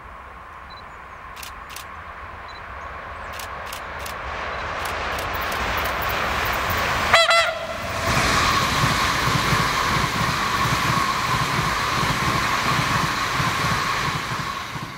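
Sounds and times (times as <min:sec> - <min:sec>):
electric train passing: 0:00.0 - 0:14.9
double honk: 0:07.1 - 0:07.9.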